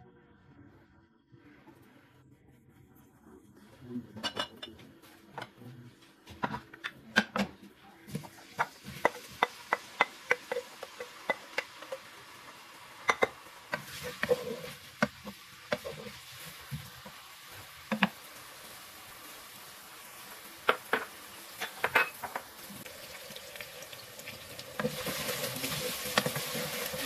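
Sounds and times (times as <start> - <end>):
onions sizzling: 8.1 - 27.0.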